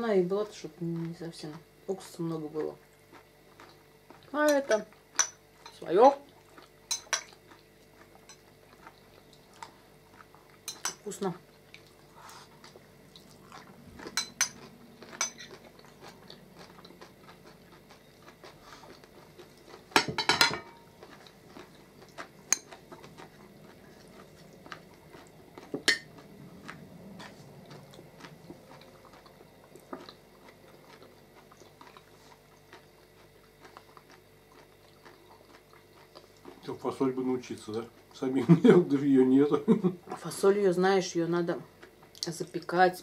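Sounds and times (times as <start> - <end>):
quiet chewing: 0.4 - 20.1, 20.7 - 38.3, 41.4 - 42.8
cutlery clinking on plates: 15.2 - 15.6, 20.0 - 20.8.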